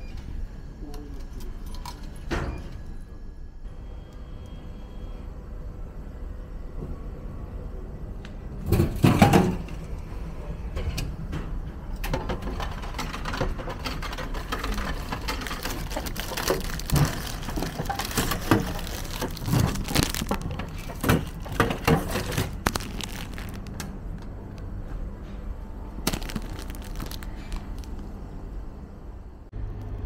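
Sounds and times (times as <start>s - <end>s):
clatter in vending machine: 8.6s - 9.8s, 10.8s - 24.2s, 26.0s - 28.0s
plastic bag crinkling: 13.9s - 24.1s, 26.0s - 28.2s.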